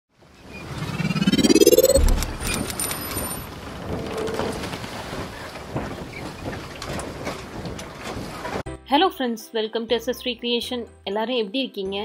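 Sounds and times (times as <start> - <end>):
rising whoosh: 0.6 - 2.9
low boom: 0.9 - 2.7.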